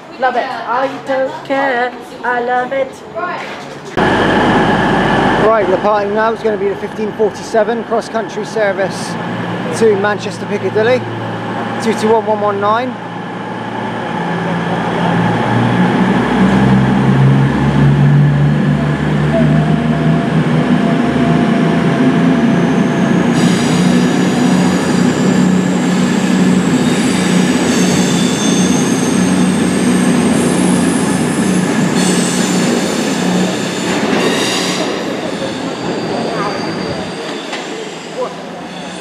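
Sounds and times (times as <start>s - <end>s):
diesel engines droning: 3.8s - 39.0s
train wheels squealing: 22.5s - 39.0s.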